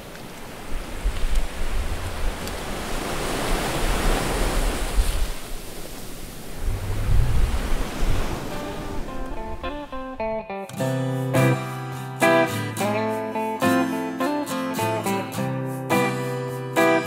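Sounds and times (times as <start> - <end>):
small waves breaking on beach: 0.0 - 9.5
wind rumble on microphone: 0.4 - 10.0
plucked acoustic guitar: 8.5 - 17.0.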